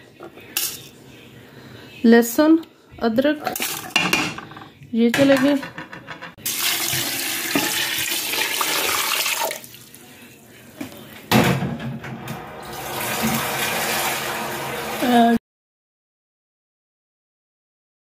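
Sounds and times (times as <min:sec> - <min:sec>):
water pouring into metal pot: 0:06.4 - 0:10.0, 0:12.6 - 0:15.2
water splashing: 0:12.7 - 0:15.2.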